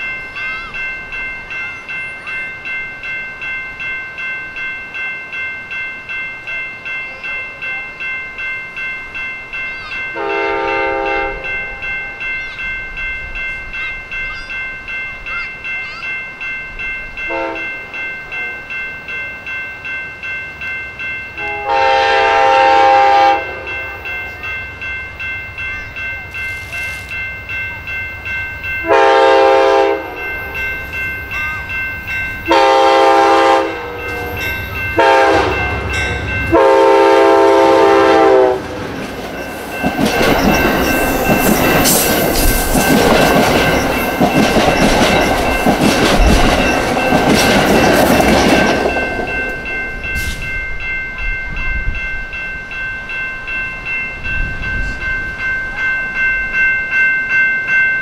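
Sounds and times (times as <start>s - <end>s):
crossing bell ringing: 0.0s - 58.0s
locomotive horn blasts: 10.2s - 11.4s, 17.3s - 17.6s, 21.4s - 24.0s, 28.8s - 30.3s, 32.5s - 34.4s, 35.0s - 35.9s, 36.5s - 38.7s
train wheels clattering on rails: 29.4s - 50.8s.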